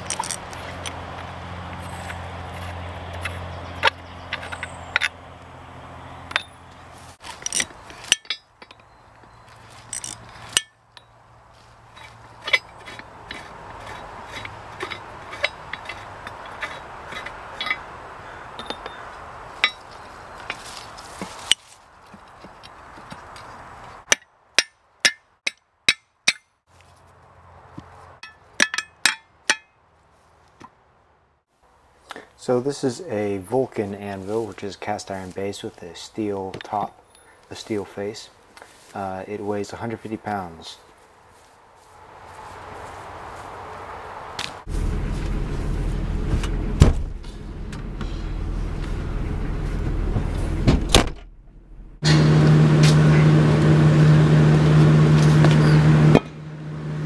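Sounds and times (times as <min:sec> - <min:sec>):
metal bolts clinking on anvil: 0:00.0 - 0:01.0, 0:06.3 - 0:06.6, 0:07.4 - 0:09.0, 0:09.9 - 0:11.1, 0:14.9 - 0:17.8, 0:18.6 - 0:19.0, 0:28.2 - 0:29.7.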